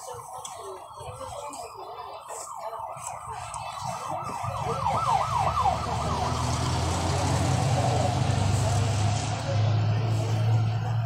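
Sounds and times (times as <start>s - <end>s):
siren yelping: 0.0s - 8.2s
vehicle engine rumble: 0.0s - 11.0s.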